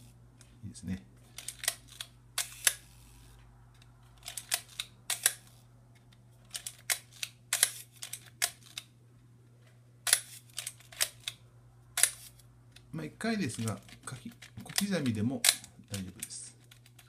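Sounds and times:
camera shutter release: 1.4s - 3.2s, 4.2s - 5.6s, 12.0s - 12.4s
film-advance lever clicks: 13.5s - 17.0s.

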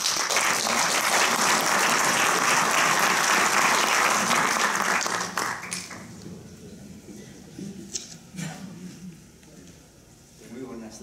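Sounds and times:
audience applauding: 0.0s - 6.1s.

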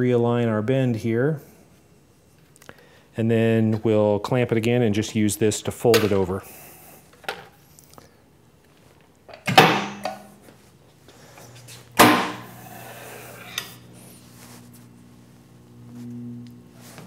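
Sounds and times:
sharp metal clunks: 9.3s - 10.3s
electromagnet low hum: 9.6s - 17.0s.

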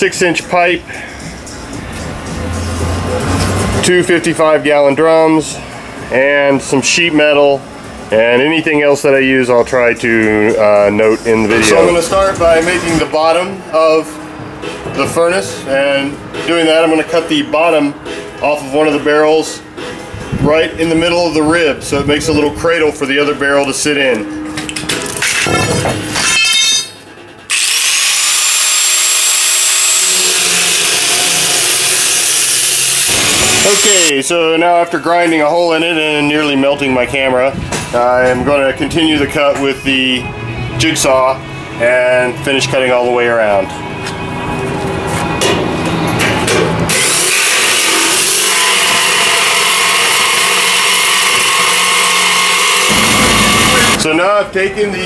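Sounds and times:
angle grinder cutting steel: 26.1s - 34.1s, 46.9s - 54.0s.

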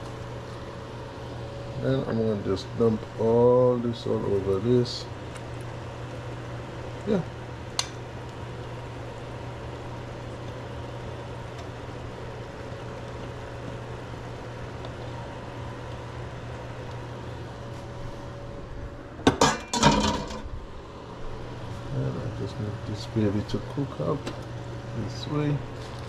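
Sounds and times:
steady background hum: 0.0s - 26.0s
pots and utensils clattering: 19.3s - 20.4s.

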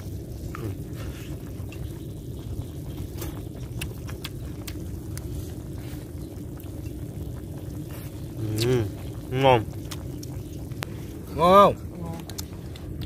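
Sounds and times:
person chewing and smacking: 3.3s - 5.3s, 9.8s - 10.4s.

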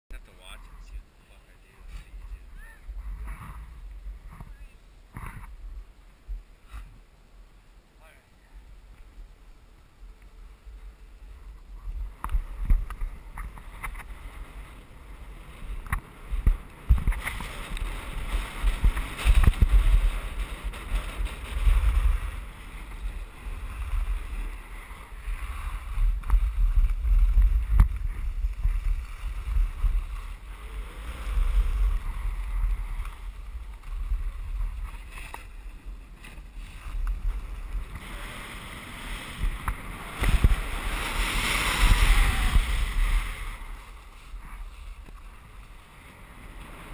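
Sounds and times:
skis scraping over snow: 10.4s - 46.9s
wind buffeting microphone: 10.4s - 46.9s.

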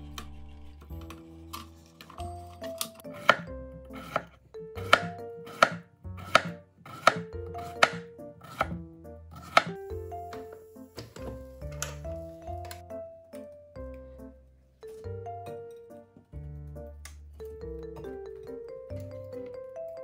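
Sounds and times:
knife slicing on cutting board: 4.9s - 8.8s, 9.4s - 9.7s.

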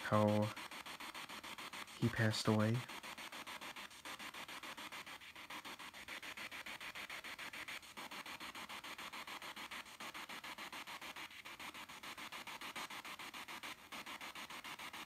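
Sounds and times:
chopped radio static: 0.0s - 7.5s.

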